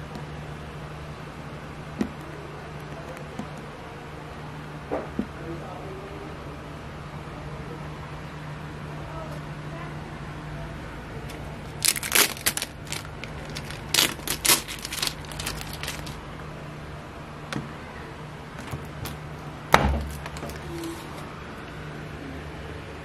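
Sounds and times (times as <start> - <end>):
plastic film crackling: 11.6 - 16.2, 20.0 - 21.3.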